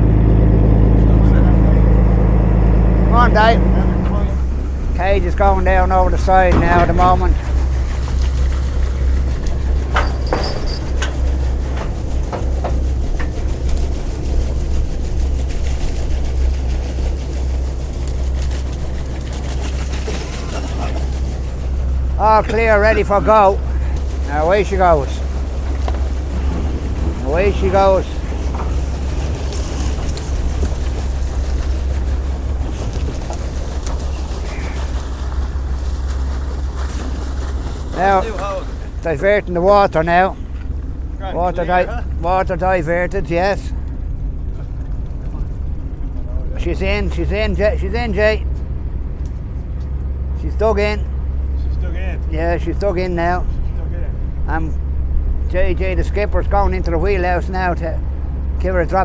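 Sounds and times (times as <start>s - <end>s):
rushing wash of water: 0.0s - 51.6s
boat engine droning: 0.0s - 59.0s
metallic clanks: 9.4s - 13.5s.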